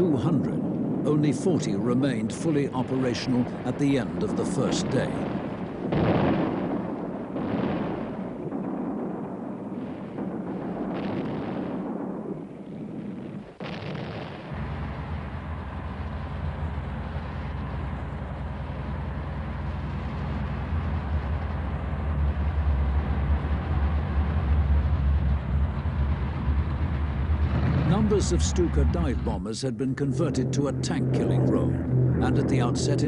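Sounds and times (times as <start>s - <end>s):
artillery fire and explosions: 0.0s - 33.0s
low engine drone: 14.5s - 33.0s.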